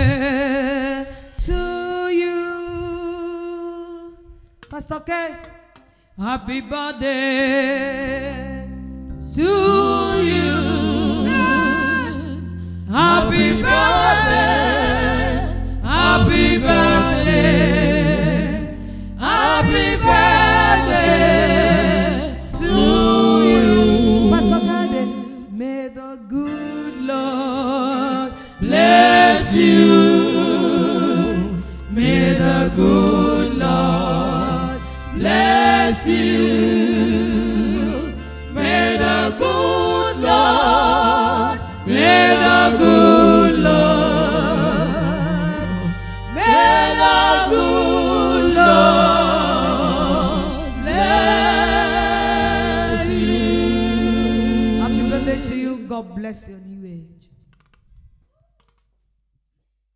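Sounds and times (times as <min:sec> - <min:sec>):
gospel voices singing: 0:00.0 - 0:04.1, 0:05.8 - 0:56.0
steady bass line: 0:08.6 - 0:25.5, 0:28.6 - 0:55.6.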